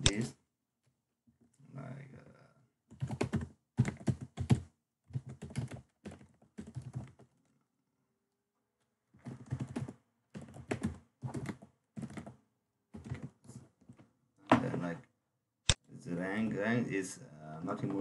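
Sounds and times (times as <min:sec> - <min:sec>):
typing on computer keyboard: 0:02.9 - 0:07.4, 0:09.2 - 0:13.4.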